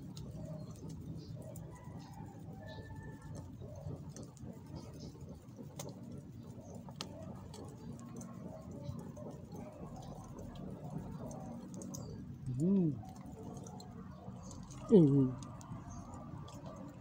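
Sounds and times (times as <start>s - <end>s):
small clicks from coals: 0.0s - 17.0s.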